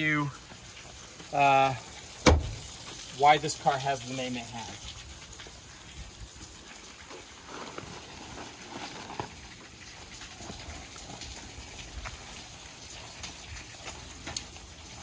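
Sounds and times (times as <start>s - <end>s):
fabric car cover rustling: 7.4s - 9.4s.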